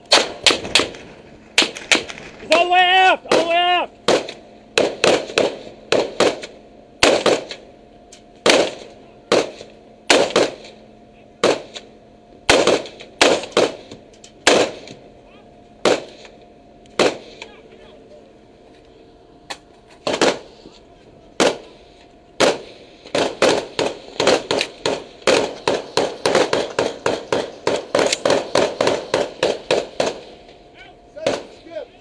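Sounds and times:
faint steady hum: 0:00.0 - 0:32.0
rifle shots with echo: 0:00.1 - 0:02.4, 0:03.3 - 0:07.7, 0:08.4 - 0:10.8, 0:11.4 - 0:11.9, 0:12.5 - 0:15.0, 0:15.8 - 0:17.6, 0:20.0 - 0:20.5, 0:21.4 - 0:21.8, 0:22.4 - 0:30.6, 0:31.2 - 0:31.8.

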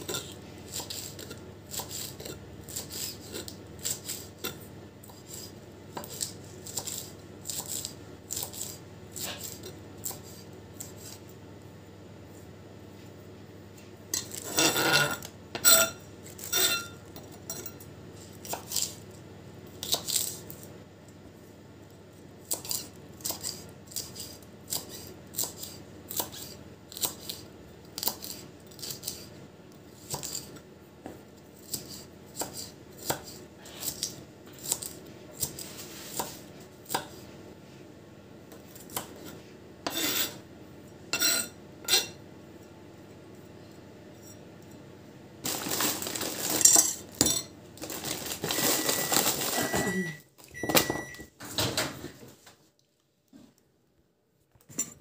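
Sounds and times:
knife chopping on wooden board: 0:31.6 - 0:37.2.

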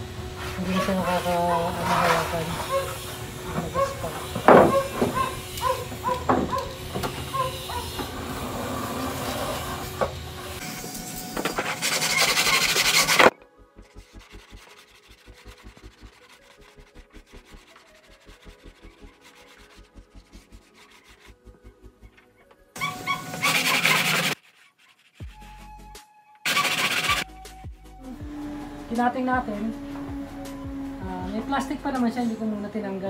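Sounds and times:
faint background music: 0:00.0 - 0:05.5, 0:13.3 - 0:22.9, 0:25.2 - 0:33.0
plastic tray scraping on plywood: 0:00.4 - 0:05.4, 0:11.6 - 0:13.3, 0:22.8 - 0:24.8.

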